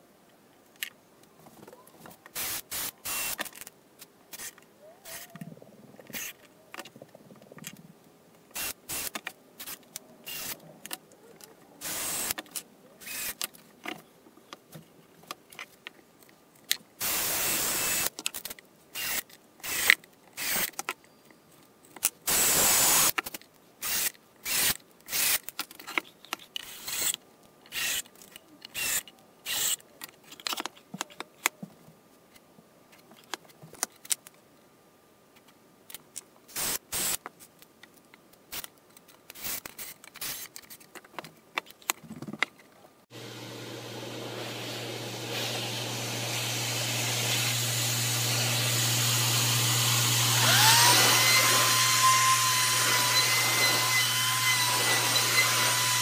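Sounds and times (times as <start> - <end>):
cordless drill driving screws: 2.4 - 3.5, 8.6 - 10.6, 11.8 - 12.4, 13.0 - 13.4, 17.0 - 18.1, 19.0 - 20.7, 22.3 - 23.2, 23.8 - 25.4, 26.6 - 28.0, 28.8 - 29.8, 36.6 - 37.2, 44.5 - 56.0.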